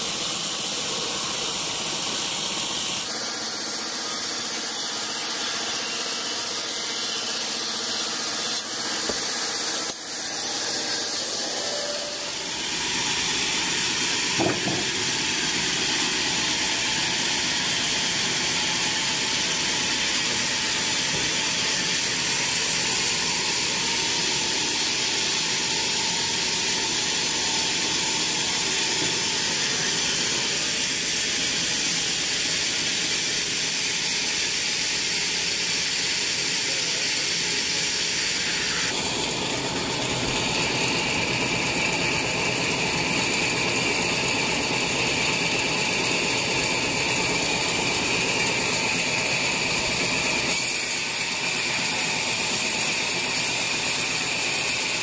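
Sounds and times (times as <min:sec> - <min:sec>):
saw cutting through timber: 0:00.0 - 0:55.0
sawmill saw running: 0:00.0 - 0:55.0
short knock: 0:14.4 - 0:15.0.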